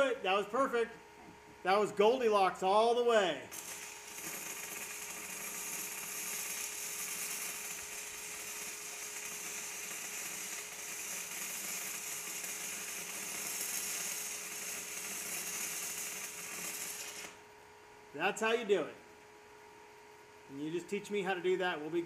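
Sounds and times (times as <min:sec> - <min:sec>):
welding arc hiss and crackle: 0:03.3 - 0:17.5.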